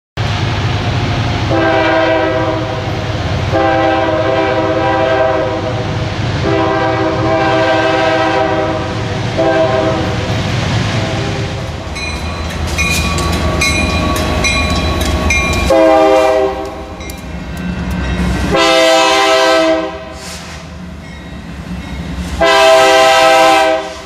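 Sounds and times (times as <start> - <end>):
locomotive horn blasts: 1.5 - 10.3, 15.6 - 17.0, 18.5 - 20.4, 22.4 - 24.0
bell ringing rapidly: 12.0 - 15.7.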